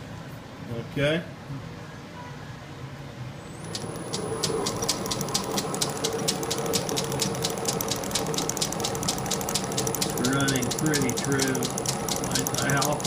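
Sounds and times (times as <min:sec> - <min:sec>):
lathe high whine: 0:03.6 - 0:13.0
regular ticking of spindle: 0:03.6 - 0:13.0.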